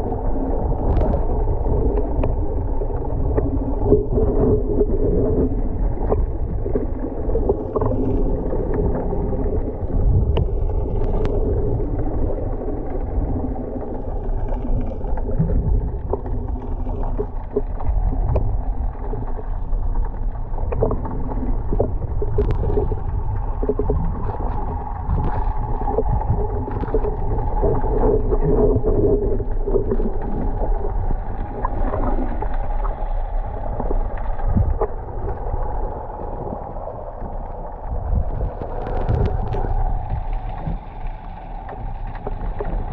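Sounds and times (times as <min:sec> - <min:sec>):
muffled underwater rumble: 0:00.0 - 0:42.9
small underwater clicks: 0:00.0 - 0:42.9.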